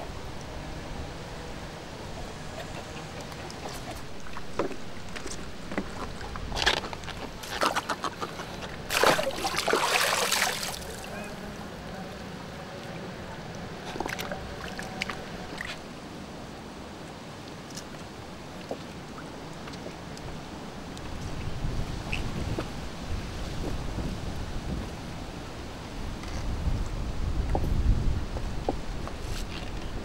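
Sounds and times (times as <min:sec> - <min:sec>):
water splashing and sloshing: 0:02.0 - 0:11.2, 0:13.6 - 0:16.1, 0:17.1 - 0:21.5.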